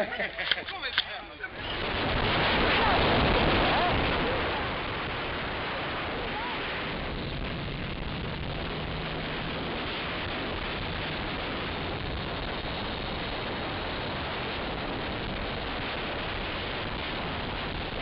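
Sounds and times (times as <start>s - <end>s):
wind rushing on microphone: 1.5s - 18.0s.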